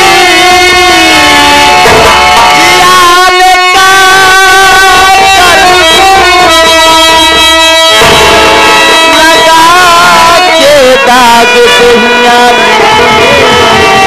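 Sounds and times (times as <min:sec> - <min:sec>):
live stage music: 0:00.0 - 0:14.0.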